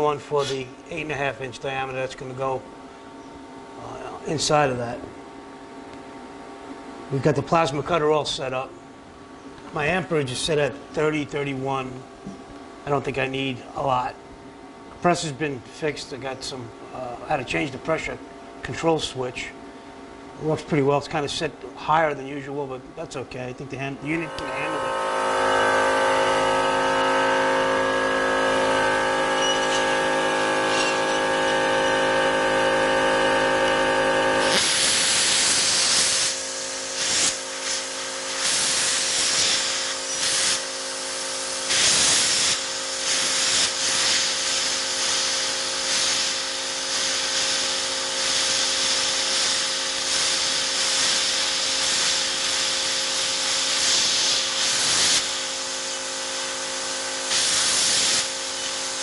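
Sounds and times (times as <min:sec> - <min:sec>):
plasma cutter arc hissing: 0:00.3 - 0:00.7, 0:28.5 - 0:32.6, 0:34.3 - 0:59.0
machine humming: 0:21.5 - 0:50.8.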